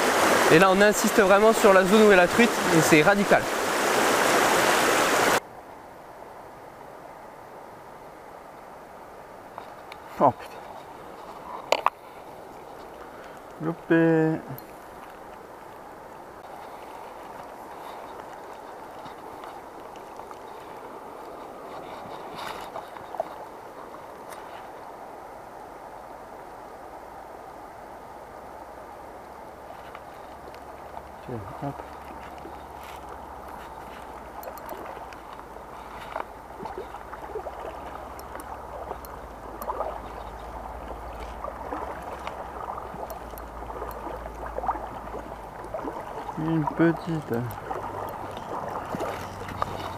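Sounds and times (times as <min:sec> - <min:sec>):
river water rippling over stones: 0:00.0 - 0:49.9
faint clicks: 0:31.8 - 0:46.2.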